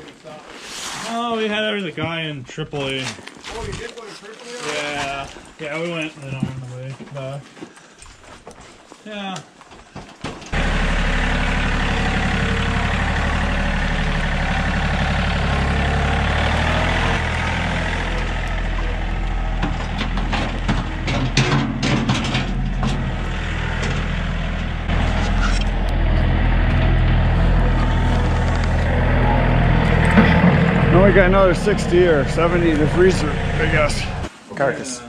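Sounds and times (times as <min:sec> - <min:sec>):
tractor engine running: 0:10.5 - 0:34.3
thuds and knocks of loader bucket: 0:19.4 - 0:24.7.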